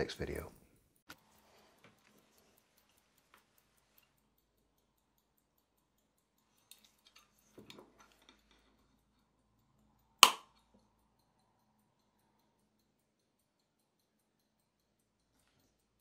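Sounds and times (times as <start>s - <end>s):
faint rapid watch ticking: 0.0s - 16.0s
small metal clicks: 0.7s - 16.0s.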